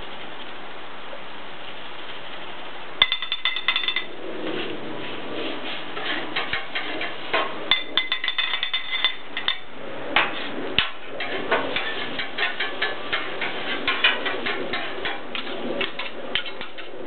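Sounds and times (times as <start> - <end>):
steady sizzling hiss: 0.0 - 17.0
metal spatulas clacking on griddle: 3.0 - 4.1, 6.4 - 9.6.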